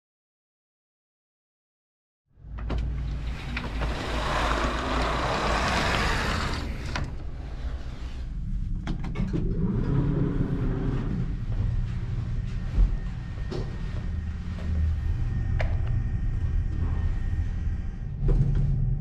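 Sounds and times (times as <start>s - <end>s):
low rumble: 2.4s - 19.0s
shade sliding open: 3.2s - 8.0s.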